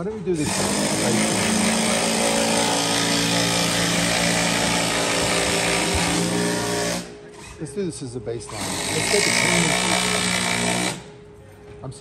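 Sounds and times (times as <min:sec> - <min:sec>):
electric power tool motor hum: 0:00.4 - 0:07.1, 0:08.5 - 0:11.1.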